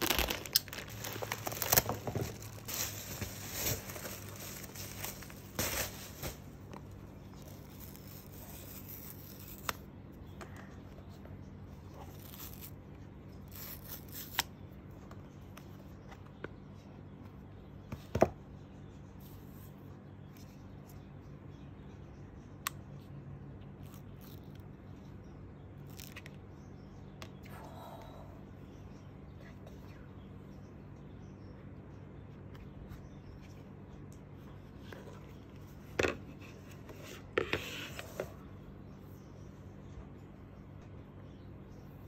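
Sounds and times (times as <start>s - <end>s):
plastic mailer bag tearing: 0.0s - 6.5s.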